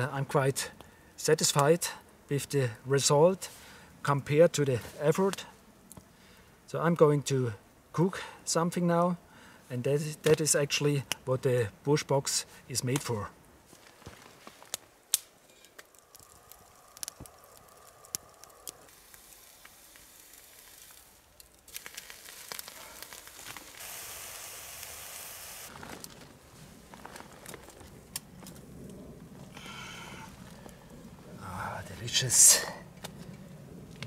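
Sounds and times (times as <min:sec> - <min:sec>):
wood fire crackling and popping: 0:12.8 - 0:34.0
food sizzling: 0:15.8 - 0:25.8.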